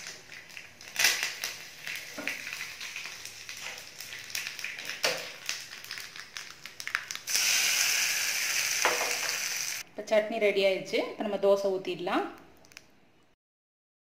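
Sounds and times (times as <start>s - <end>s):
spices crackling in hot oil: 0.0s - 9.8s
loud steady sizzle: 0.0s - 9.9s.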